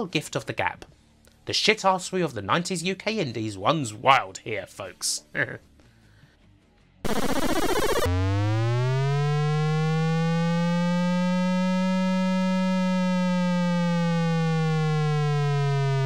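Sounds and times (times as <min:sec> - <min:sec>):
buzzy synthesized gliding tone: 0:07.1 - 0:16.0
harsh buzzing burst: 0:07.1 - 0:16.0.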